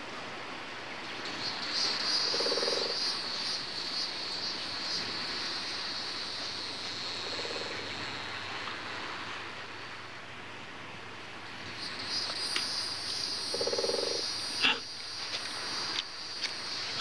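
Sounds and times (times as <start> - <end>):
insects chirring: 1.1 - 10.1, 11.4 - 17.0
frog croaking: 1.2 - 8.4, 11.7 - 17.0.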